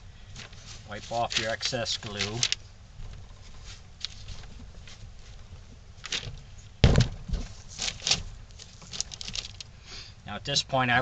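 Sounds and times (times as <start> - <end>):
loud thump: 6.8 - 7.5.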